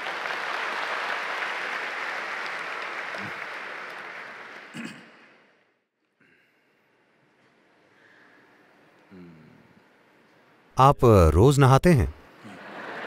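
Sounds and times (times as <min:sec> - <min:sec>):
large crowd applauding: 0:00.0 - 0:04.8.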